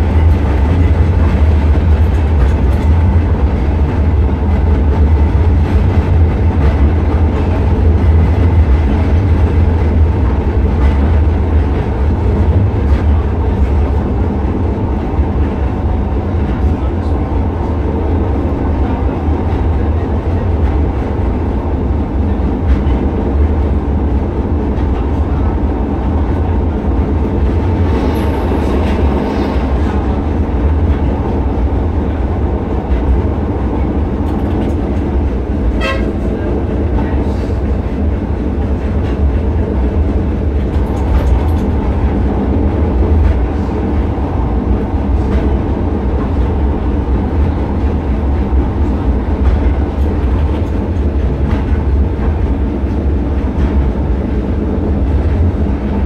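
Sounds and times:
tram rumbling on rails: 0.0 - 56.0.

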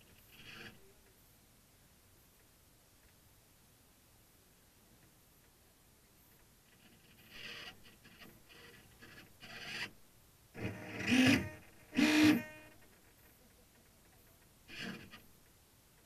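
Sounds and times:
servo motors whirring: 10.6 - 12.8, 14.7 - 15.2.

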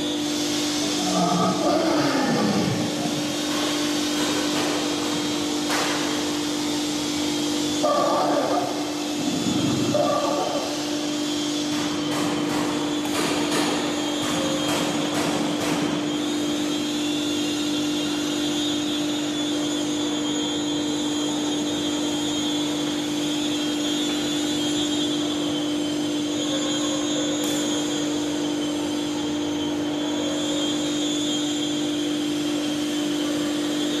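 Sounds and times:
electric drive motors humming: 0.0 - 15.1.

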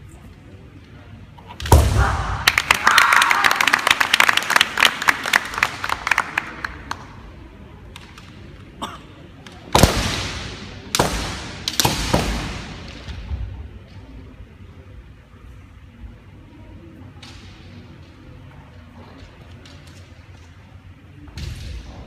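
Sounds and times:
loud echoing strikes: 1.6 - 3.0, 9.7 - 13.2.

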